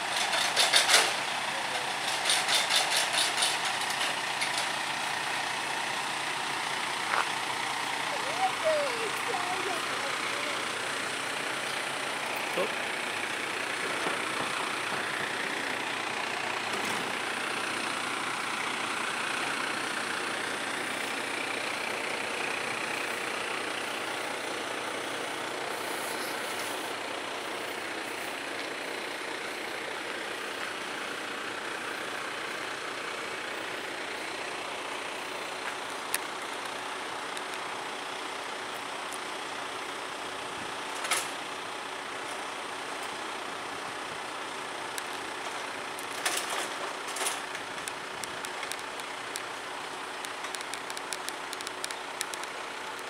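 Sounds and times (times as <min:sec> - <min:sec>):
truck engine running: 0:00.0 - 0:53.0.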